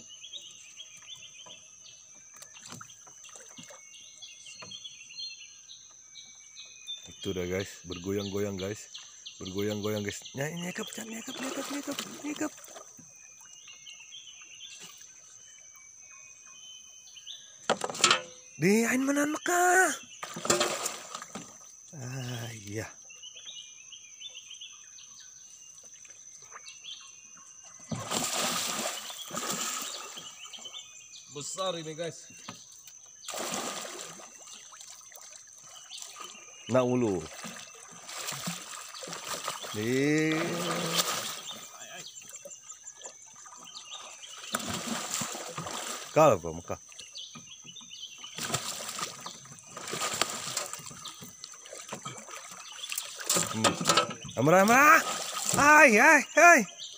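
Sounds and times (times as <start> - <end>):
bird chirps: 0.0 - 20.6, 21.3 - 56.9
net splashing in water: 11.2 - 12.8, 20.2 - 21.6, 27.9 - 30.3, 33.3 - 36.4, 37.2 - 41.7, 43.4 - 46.2, 48.4 - 53.9, 54.9 - 55.8
high insect drone: 14.9 - 56.9.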